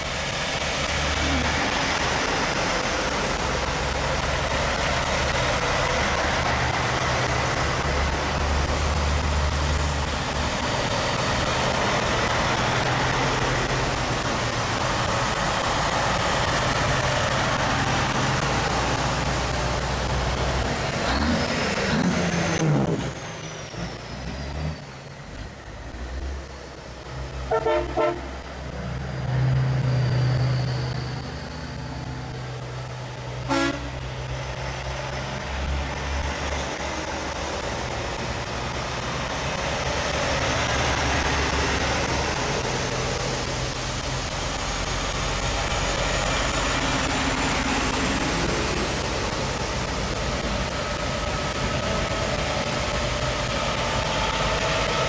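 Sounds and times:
diesel truck engines running: 0.0s - 55.0s
truck horn toots: 27.5s - 28.3s, 33.5s - 34.0s.

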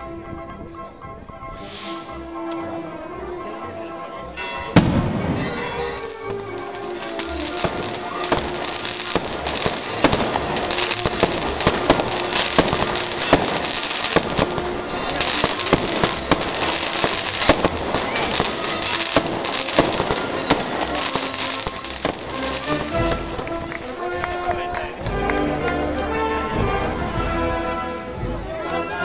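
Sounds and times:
band playing: 0.0s - 29.0s
crackling hiss: 1.6s - 2.2s, 6.2s - 23.5s
fireworks cracking and banging: 4.6s - 29.0s.

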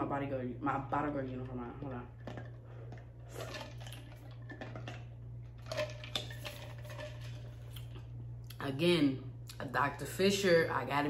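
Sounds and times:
steady low hum: 0.0s - 11.0s
person drinking: 2.2s - 5.1s.

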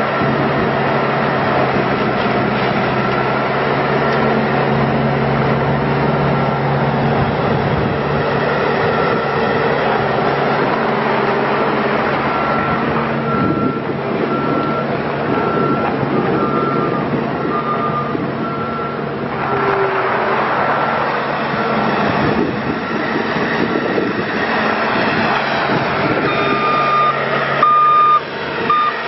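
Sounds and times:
diesel engine running: 0.0s - 29.0s
backup alarm beeping: 26.3s - 29.0s.

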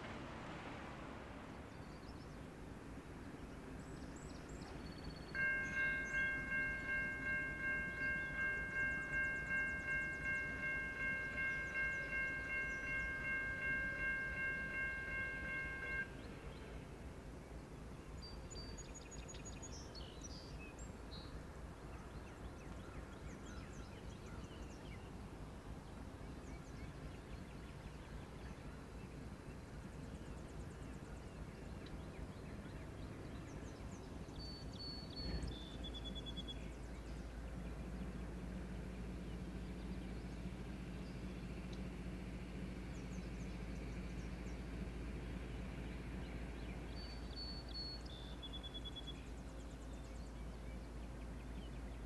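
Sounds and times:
low outdoor rumble: 0.0s - 52.0s
songbird whistling: 5.0s - 16.1s.

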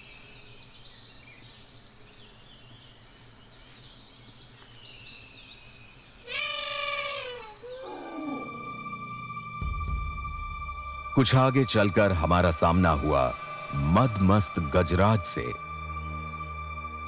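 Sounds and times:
bird chirps: 0.0s - 14.4s
insect drone: 0.0s - 17.0s
animal call falling in pitch: 6.3s - 10.0s.

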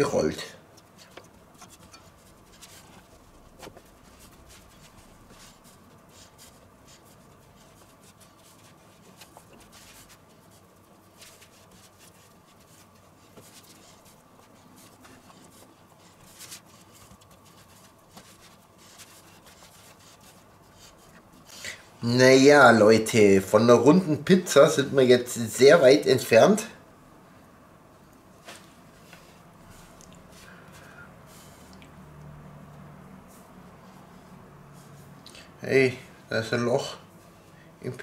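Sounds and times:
faint steady hum: 0.0s - 38.0s
hands rubbing dough on wooden board: 0.8s - 21.8s.

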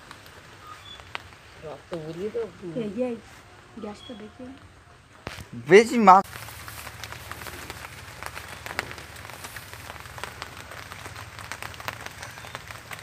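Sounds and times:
light crackling and rustling: 0.0s - 13.0s.

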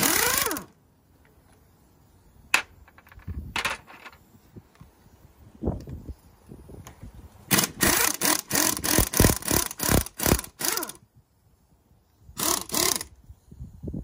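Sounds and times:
pneumatic impact wrench bursts: 0.0s - 0.8s, 7.4s - 11.1s, 12.3s - 13.2s.

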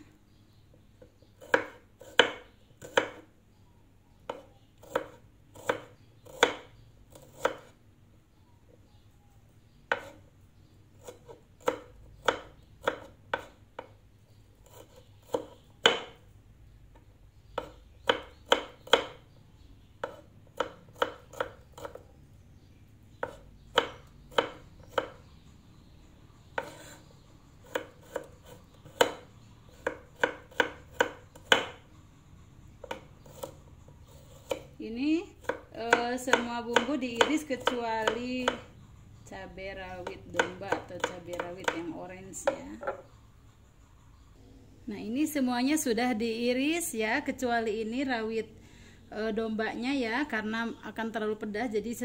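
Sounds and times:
knife chopping on wooden board: 1.4s - 3.2s, 4.3s - 7.7s, 9.9s - 10.2s, 11.0s - 13.9s, 14.6s - 16.2s, 17.6s - 19.2s, 20.0s - 22.0s, 23.2s - 25.2s, 26.5s - 31.8s, 32.8s - 34.7s, 35.4s - 38.7s, 40.0s - 43.1s.

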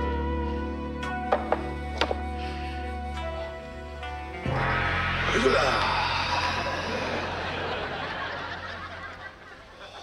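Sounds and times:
instrumental music with steady bass: 0.0s - 5.5s.

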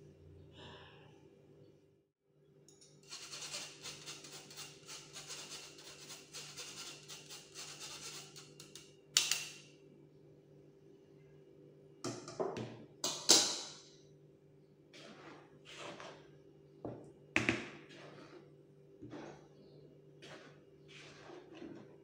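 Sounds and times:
spoon rasping in mesh sieve: 3.0s - 9.6s, 14.9s - 16.3s, 17.7s - 19.5s, 20.2s - 22.0s.

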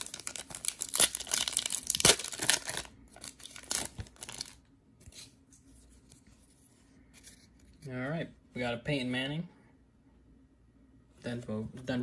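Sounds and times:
wrapper tearing and crinkling: 0.0s - 4.6s.

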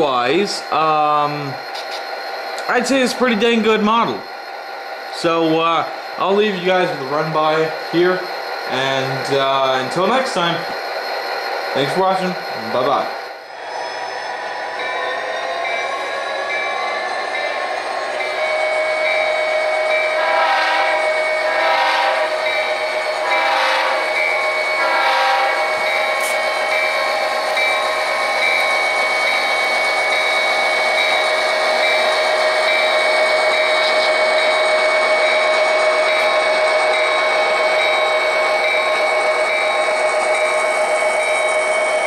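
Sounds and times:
locomotive horn blasts: 20.2s - 22.4s, 23.2s - 24.1s, 24.8s - 25.6s.

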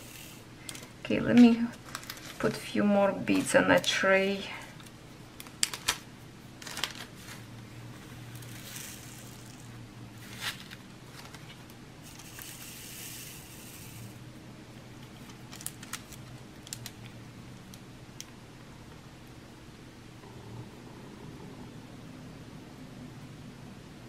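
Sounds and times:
low hum: 7.2s - 24.0s.

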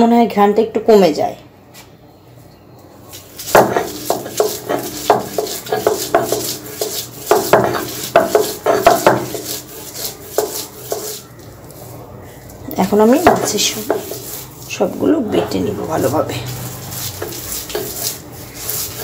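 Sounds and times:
stone pestle grinding on stone: 3.2s - 11.8s, 12.8s - 19.0s.

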